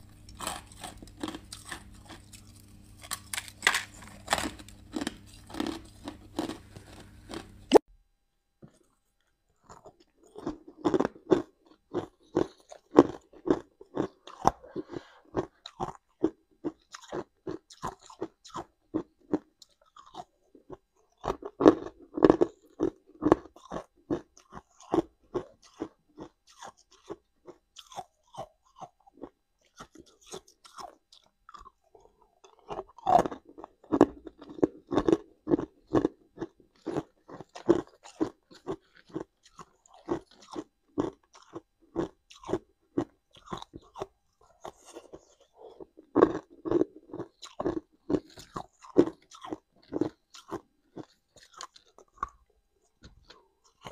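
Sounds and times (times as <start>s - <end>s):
person crunching ice: 0.0s - 7.8s, 32.5s - 52.4s.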